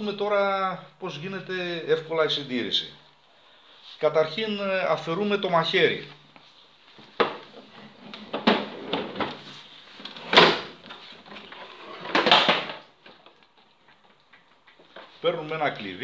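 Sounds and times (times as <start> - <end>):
plastic lawn mower knocks and scrapes: 11.4 - 12.8.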